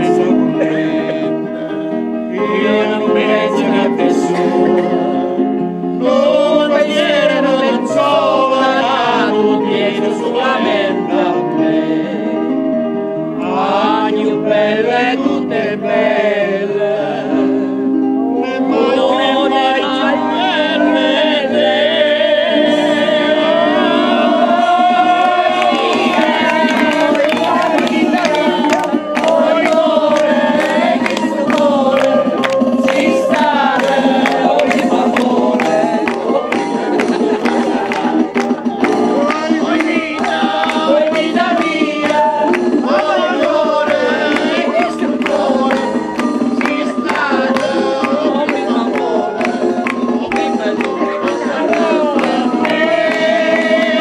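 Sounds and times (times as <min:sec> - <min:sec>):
voices singing: 0:00.0 - 0:12.7, 0:13.3 - 0:54.0
held keyboard chords: 0:00.0 - 0:54.0.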